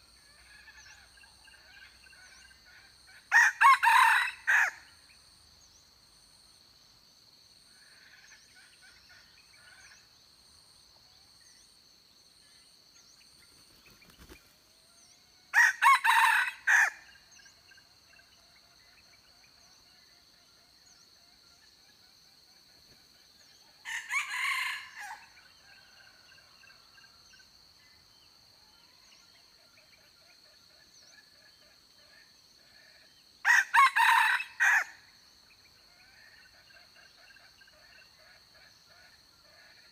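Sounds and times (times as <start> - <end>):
rooster crowing: 3.3 - 4.9, 15.5 - 17.1, 23.8 - 26.4, 33.4 - 35.0.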